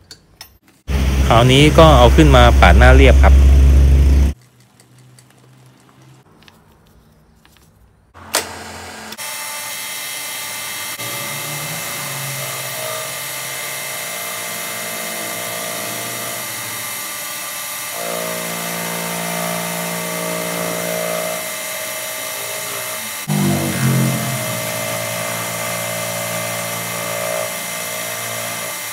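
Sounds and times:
milling machine cutting metal: 0:08.2 - 0:28.9.

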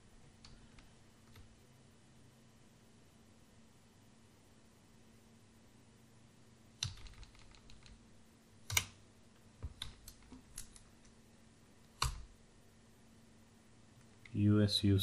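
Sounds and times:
computer keystrokes: 0:06.8 - 0:08.0, 0:08.7 - 0:09.0, 0:12.0 - 0:12.3.

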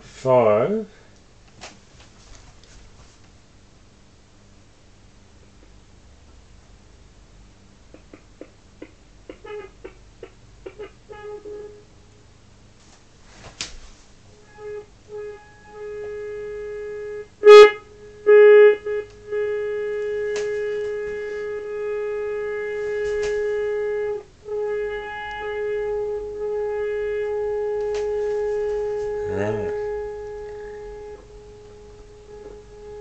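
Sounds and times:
buzzy radio test tone: 0:10.8 - 0:11.9, 0:14.4 - 0:33.0.

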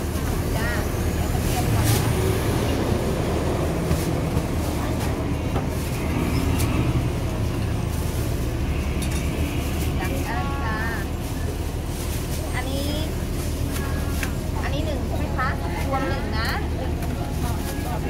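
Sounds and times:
passing traffic rumble: 0:00.0 - 0:18.0
voices in background: 0:09.9 - 0:18.0.

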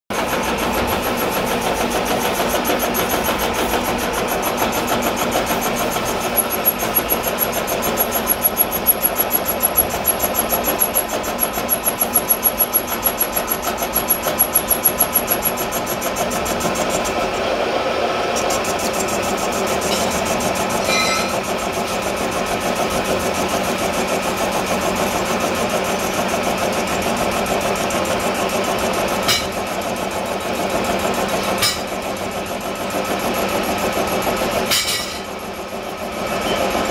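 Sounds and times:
metal lathe running: 0:00.1 - 0:36.9
cutting tool cutting steel: 0:00.7 - 0:17.4, 0:18.2 - 0:22.4, 0:29.2 - 0:29.8, 0:31.2 - 0:32.0, 0:34.7 - 0:35.3.

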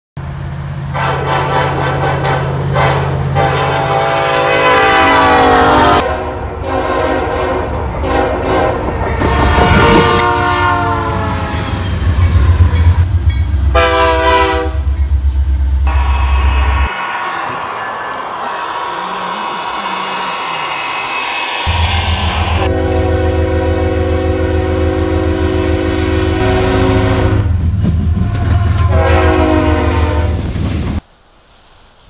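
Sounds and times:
locomotive engines rumbling: 0:00.2 - 0:31.0
train rolling: 0:00.2 - 0:32.0
locomotive air horn blasts: 0:00.9 - 0:11.8, 0:13.7 - 0:15.0, 0:15.8 - 0:20.9, 0:21.6 - 0:27.5, 0:28.1 - 0:30.4.

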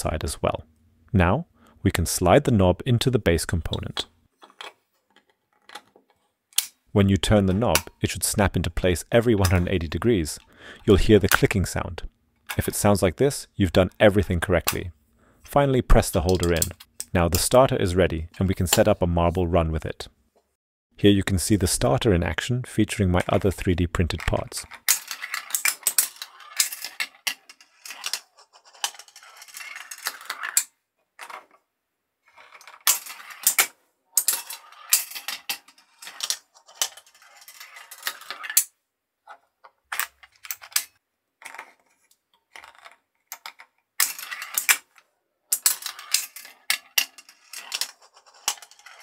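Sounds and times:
marbles rolling and clattering: 0:23.2 - 0:31.6, 0:32.2 - 0:38.7, 0:39.9 - 0:49.0.

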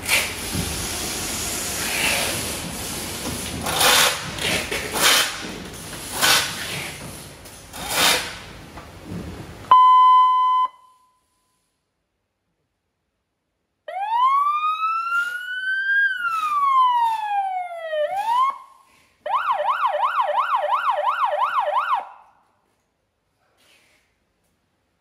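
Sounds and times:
fast siren yelp: 0:13.9 - 0:22.2
siren wail: 0:13.9 - 0:22.2.

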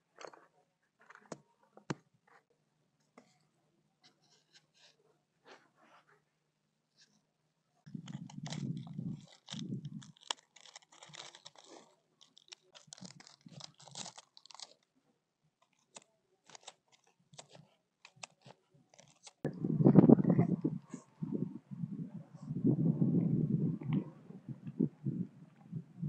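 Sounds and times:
low rumbles: 0:19.5 - 0:26.0.

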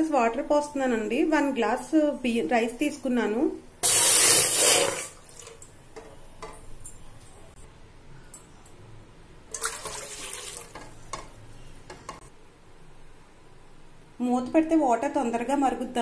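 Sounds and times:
water pouring into metal pot: 0:03.8 - 0:05.7, 0:09.5 - 0:10.8.

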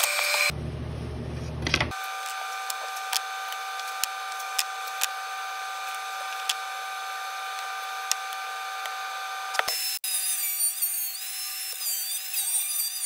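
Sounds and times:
shop machine whining: 0:00.0 - 0:13.0.

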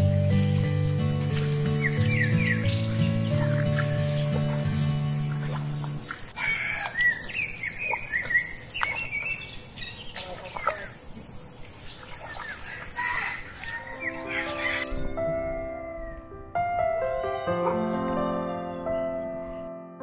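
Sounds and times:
background music: 0:00.0 - 0:06.1, 0:13.8 - 0:20.0
chickens and birds chirping: 0:01.2 - 0:16.2.

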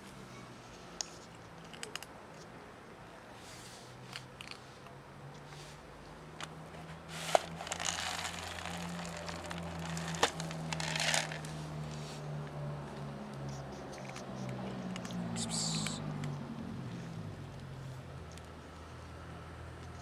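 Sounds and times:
cat crunching dry kibble: 0:01.0 - 0:02.5, 0:04.0 - 0:04.7, 0:07.2 - 0:11.6
pellets spilling onto asphalt: 0:07.1 - 0:11.5
cat food rattling in plastic tray: 0:07.7 - 0:11.4.

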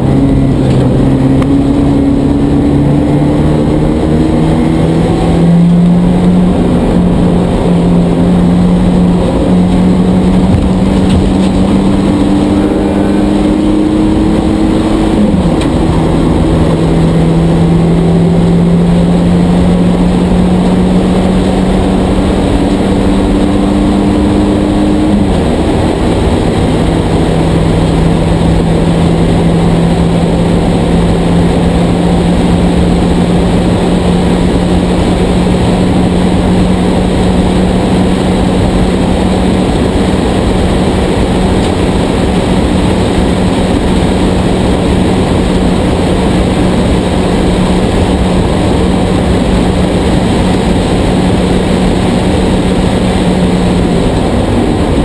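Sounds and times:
race car engine at high revs: 0:00.0 - 0:55.0
road noise: 0:00.0 - 0:55.0
wind noise: 0:00.0 - 0:55.0.

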